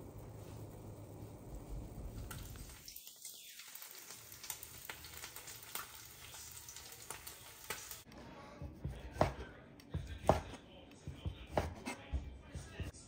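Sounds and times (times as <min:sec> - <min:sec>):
water boiling in a pot: 0:00.0 - 0:08.1.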